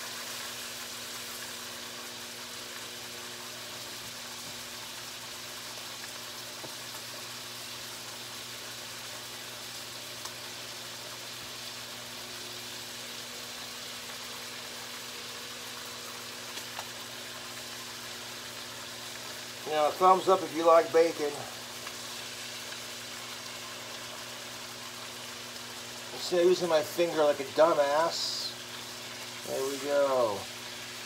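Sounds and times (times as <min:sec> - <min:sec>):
bacon sizzling in a skillet: 0:00.0 - 0:31.0.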